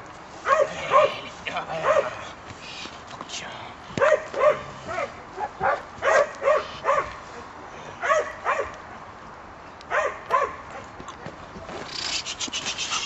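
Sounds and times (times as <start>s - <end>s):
puppy barking: 0.4s - 2.2s, 4.0s - 8.8s, 9.9s - 10.9s.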